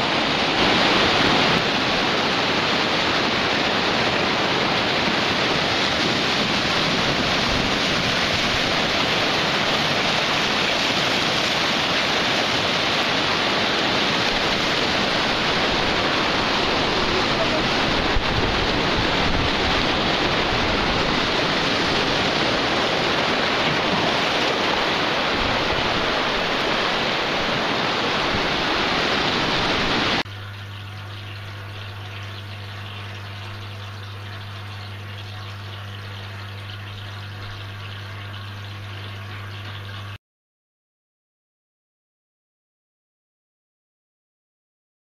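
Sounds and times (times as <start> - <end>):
wind on microphone: 0.0 - 30.2
ocean surf: 0.0 - 30.3
low hum: 29.8 - 40.2.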